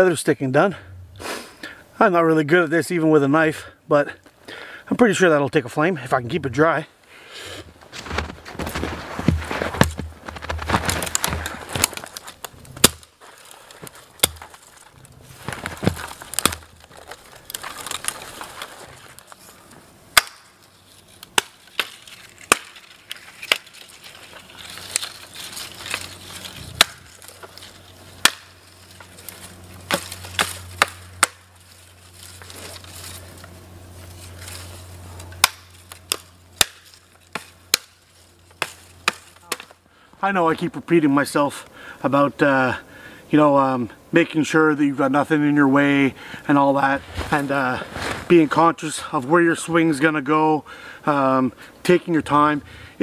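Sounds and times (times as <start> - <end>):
twigs snapping and crackling: 8.0 - 39.8
hatchet chopping twigs: 9.3 - 19.5, 20.1 - 39.8.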